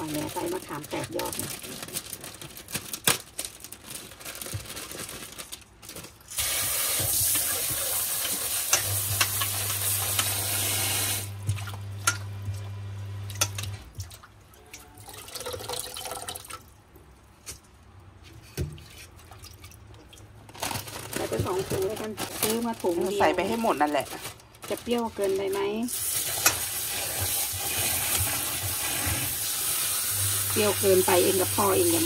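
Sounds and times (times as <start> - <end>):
plastic bag rustling: 0.0 - 10.0, 20.4 - 32.0.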